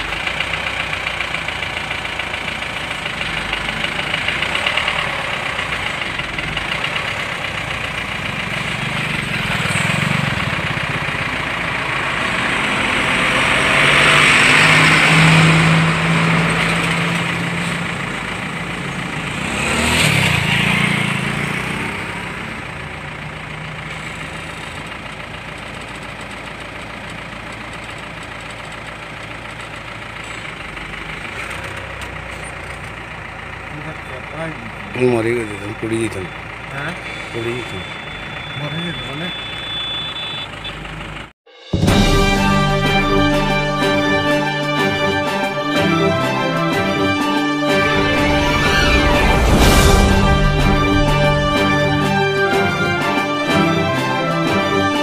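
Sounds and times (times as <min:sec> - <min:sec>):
heavy vehicles passing: 0:00.0 - 0:39.8, 0:40.4 - 0:55.0
road traffic noise: 0:00.0 - 0:55.0.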